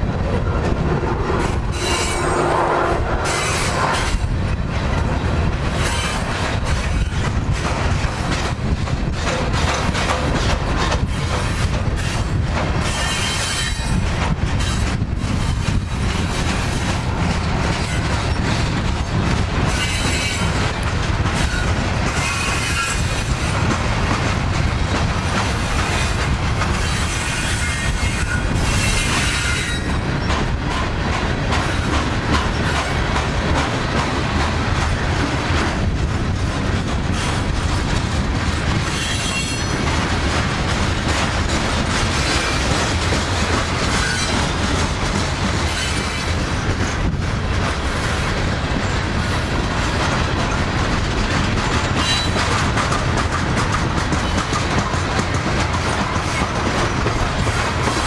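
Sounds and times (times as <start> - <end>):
train wheels rumbling on rails: 0.0 - 58.0
high-pitched wheel squeal: 1.7 - 4.2.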